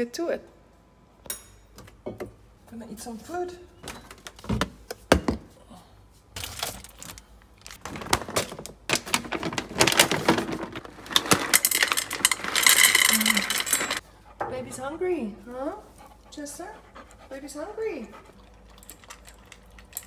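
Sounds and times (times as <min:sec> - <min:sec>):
plastic bag rustling: 0:06.3 - 0:14.0
kibble clattering into metal bowl: 0:09.0 - 0:14.0.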